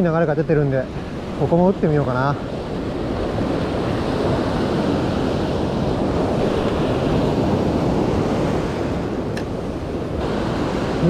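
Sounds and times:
surf waves breaking on sand: 0:00.0 - 0:11.0
wind on microphone: 0:00.0 - 0:11.0.

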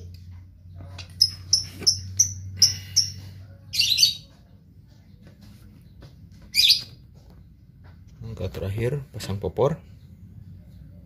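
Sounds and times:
bird chirping: 0:01.0 - 0:04.5, 0:05.8 - 0:07.3.

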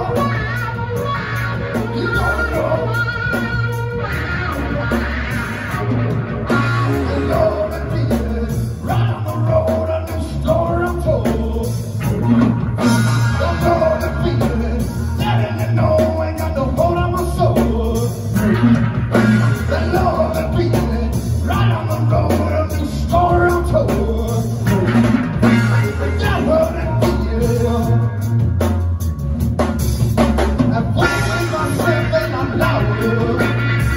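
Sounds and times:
bass guitar: 0:00.0 - 0:33.9
drum kit: 0:00.0 - 0:33.9
electric guitar: 0:00.0 - 0:33.9.

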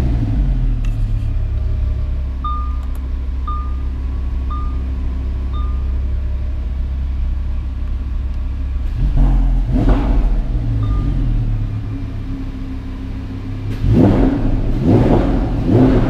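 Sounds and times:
car engine idling and revving: 0:00.0 - 0:16.0
dashboard chime: 0:02.4 - 0:02.9, 0:03.5 - 0:03.9, 0:04.5 - 0:04.9, 0:05.5 - 0:06.0.

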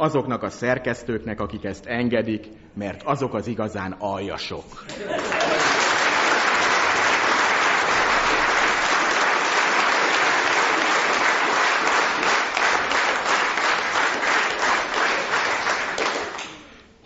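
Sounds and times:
audience applauding: 0:04.9 - 0:16.8.

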